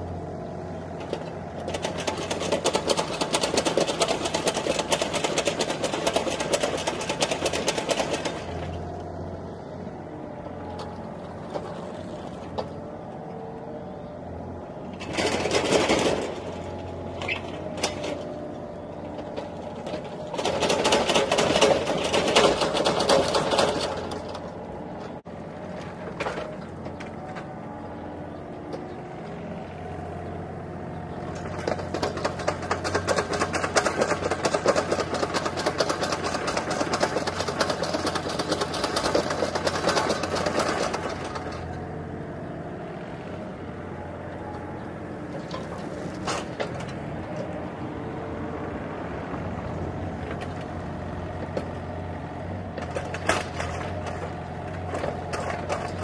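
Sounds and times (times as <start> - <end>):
toy excavator motors whirring: 31.3 - 41.8.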